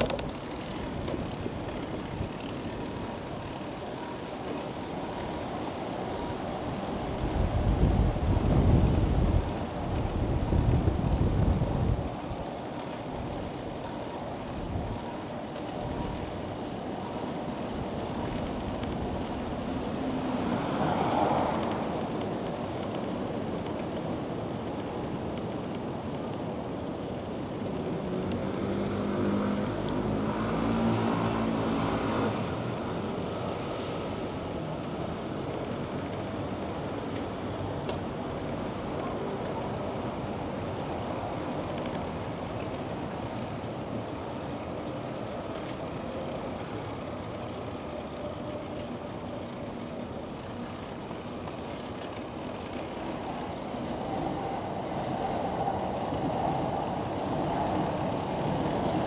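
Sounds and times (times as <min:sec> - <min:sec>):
city street traffic: 0:00.0 - 0:59.0.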